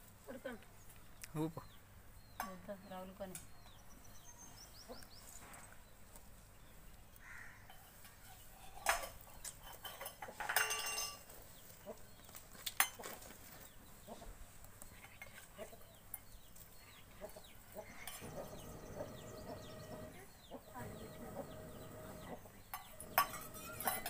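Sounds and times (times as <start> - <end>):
chickens clucking and cheeping: 11.3 - 24.0
metallic clatter: 21.0 - 24.0.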